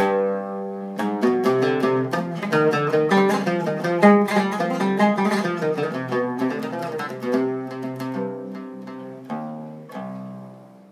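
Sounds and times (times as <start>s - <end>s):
oud being plucked: 0.0s - 10.9s.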